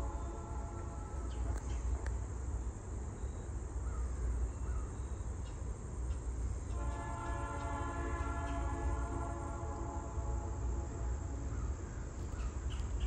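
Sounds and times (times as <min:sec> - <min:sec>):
train horn chord: 0:00.0 - 0:01.4, 0:06.7 - 0:11.5.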